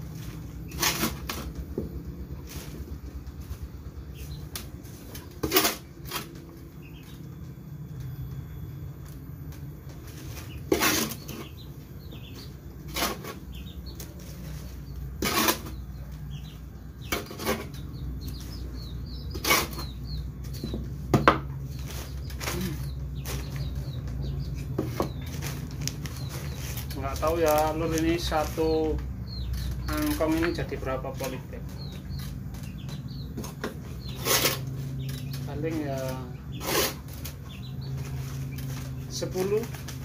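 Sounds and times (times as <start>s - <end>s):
garden tool scraping soil mix: 10.1s - 11.6s, 12.8s - 15.8s, 19.1s - 20.0s, 24.6s - 29.0s, 29.6s - 31.4s, 33.8s - 40.0s
faint bird chirps: 21.7s - 25.6s.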